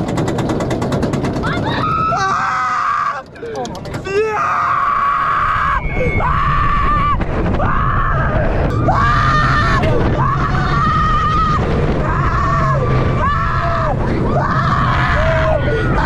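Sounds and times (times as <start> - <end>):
steady low rumble: 3.2 - 16.0.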